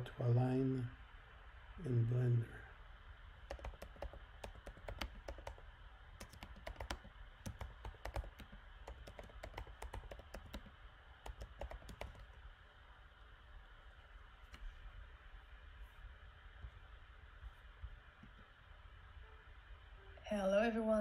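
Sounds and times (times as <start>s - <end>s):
keyboard key clicks: 3.5s - 5.6s, 6.2s - 12.4s.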